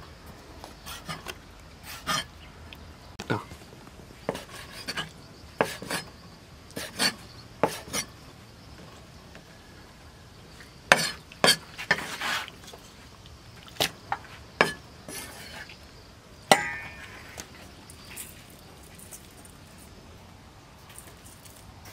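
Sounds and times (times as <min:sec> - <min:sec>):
cleaver strike with metallic ring: 0:16.5 - 0:17.4.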